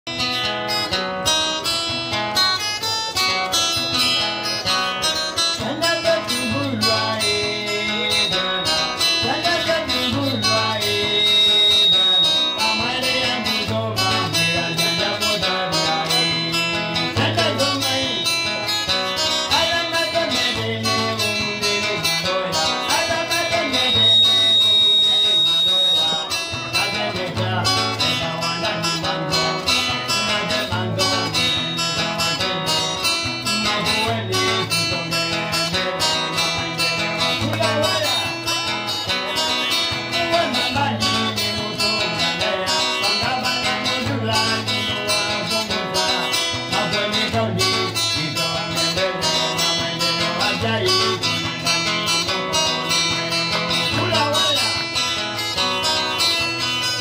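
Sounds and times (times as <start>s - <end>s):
acoustic guitar playing: 0.0s - 57.0s
thin high held tone: 5.8s - 15.1s, 15.7s - 46.6s.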